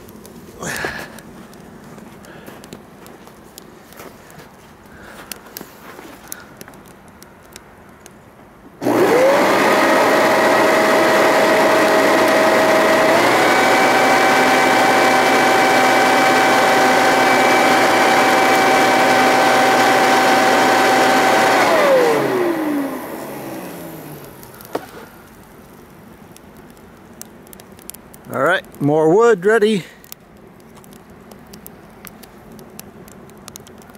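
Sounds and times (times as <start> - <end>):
electric motor whining: 8.8 - 25.2.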